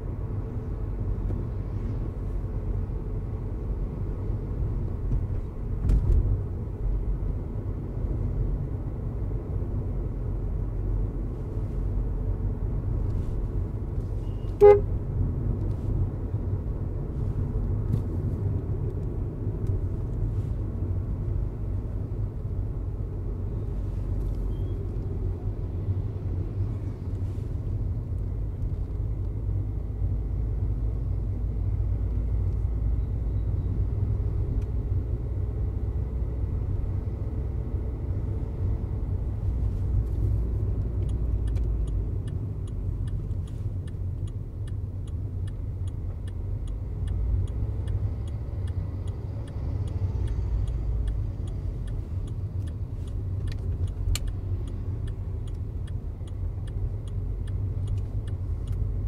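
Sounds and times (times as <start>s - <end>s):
car engine and road rumble: 0.0s - 59.0s
car horn toot: 14.2s - 14.9s.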